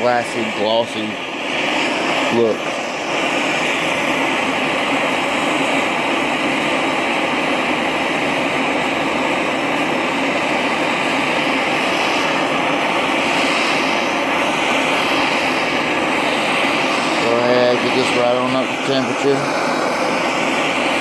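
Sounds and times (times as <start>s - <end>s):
gas torch hissing: 0.0s - 21.0s.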